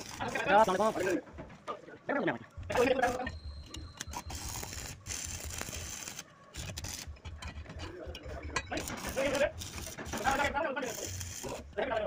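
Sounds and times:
metal clicking and scraping on steel: 2.7 - 12.0.

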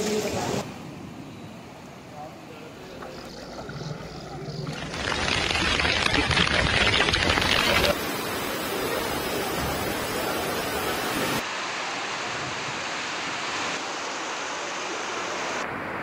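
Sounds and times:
floodwater rushing: 2.8 - 12.2.

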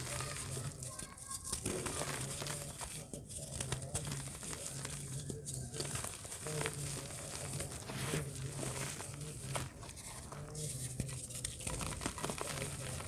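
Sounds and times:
hands crumbling dry dirt: 0.0 - 13.0.

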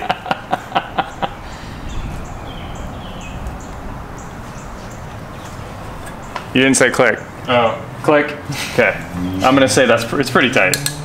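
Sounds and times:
background noise: 0.0 - 11.0
small birds chirping: 0.7 - 7.9
ratcheting wrench clicks: 10.7 - 11.0.

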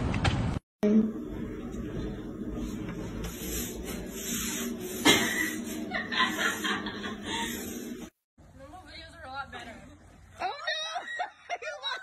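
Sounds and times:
woman laughing: 5.1 - 7.8, 10.4 - 12.0.

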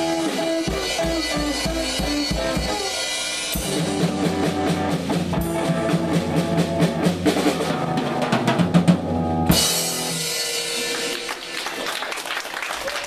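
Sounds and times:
electric guitar: 0.0 - 12.0
drum kit: 0.0 - 12.1
cymbal ringing: 9.6 - 11.8.

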